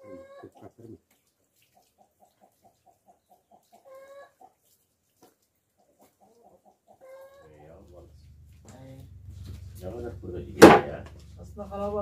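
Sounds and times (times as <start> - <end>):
chickens clucking: 0.0 - 8.4.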